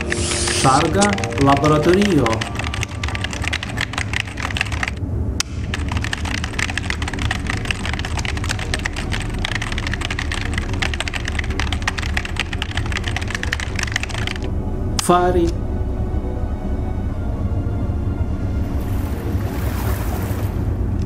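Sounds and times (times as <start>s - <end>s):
keyboard typing: 0.0s - 14.5s
steady low hum: 0.0s - 21.0s.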